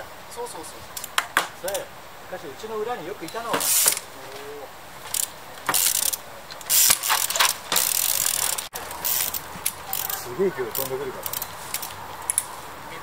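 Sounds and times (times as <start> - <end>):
bicycle freehub ratcheting: 3.3 - 4.1, 5.0 - 12.5.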